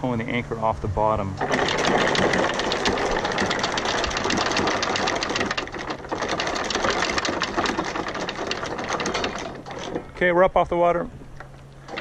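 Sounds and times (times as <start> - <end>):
anchor windlass motor running: 1.2 - 12.0
chain links clattering: 1.6 - 7.4.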